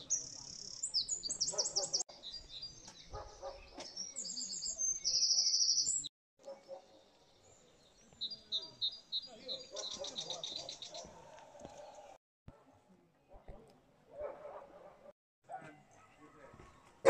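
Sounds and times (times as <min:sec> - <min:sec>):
songbirds chirping and trilling: 0:00.0 - 0:12.2.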